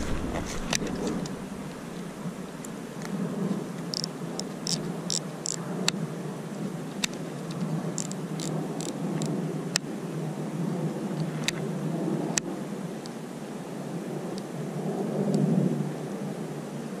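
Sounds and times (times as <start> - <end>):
wind buffeting microphone: 0.0 - 12.6
fishing reel clicks: 3.9 - 5.6, 7.0 - 9.3.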